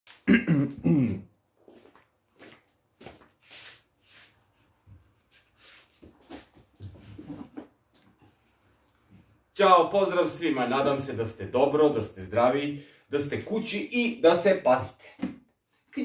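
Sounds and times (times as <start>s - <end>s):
soft footsteps: 1.6s - 9.4s.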